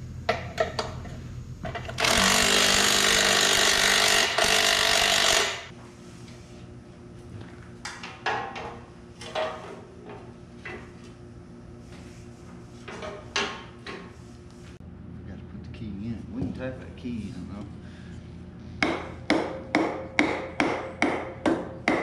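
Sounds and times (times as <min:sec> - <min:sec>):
faint steady hum: 0:00.0 - 0:22.0
power tool running: 0:01.8 - 0:05.7.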